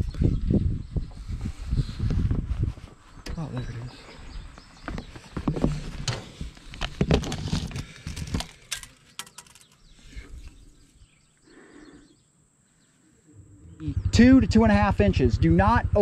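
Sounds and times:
camera being handled: 6.5s - 9.8s.

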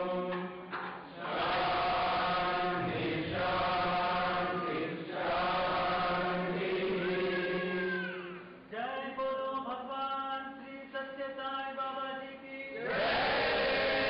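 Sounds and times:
voices chanting: 1.2s - 8.4s.

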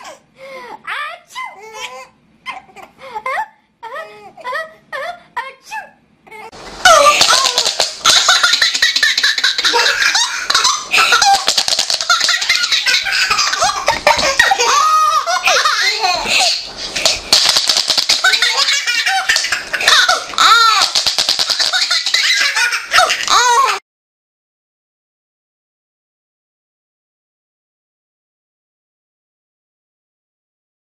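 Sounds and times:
baby laughing: 1.5s - 3.5s, 6.3s - 23.8s.

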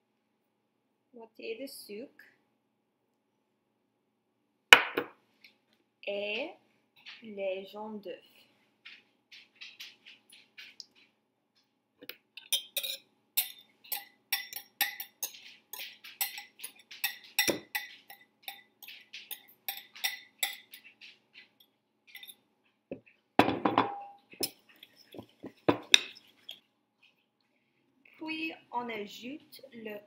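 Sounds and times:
utensil scraping ceramic bowl: 12.4s - 21.5s, 24.3s - 26.6s
ceramic clunk with ringing: 23.4s - 24.5s.

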